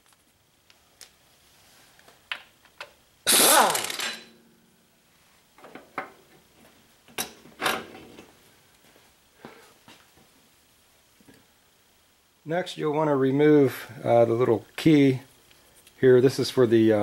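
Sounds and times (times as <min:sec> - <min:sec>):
air impact wrench whirring: 0:03.3 - 0:04.3.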